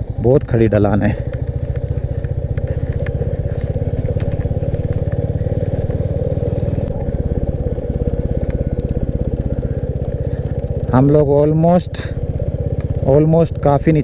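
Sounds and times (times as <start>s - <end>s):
motorcycle engine braking: 0.0s - 14.0s
faint clicks: 8.4s - 10.2s.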